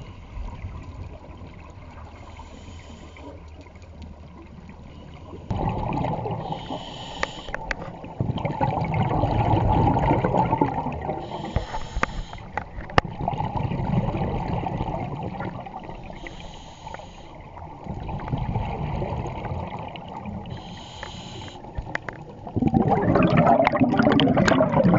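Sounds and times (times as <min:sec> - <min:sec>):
regulator hissing on inhale: 0:02.2 - 0:03.4, 0:06.4 - 0:07.8, 0:11.2 - 0:12.6, 0:16.0 - 0:17.6, 0:20.5 - 0:21.9
exhale bubbling underwater: 0:05.4 - 0:12.0, 0:13.0 - 0:16.2, 0:17.5 - 0:24.9.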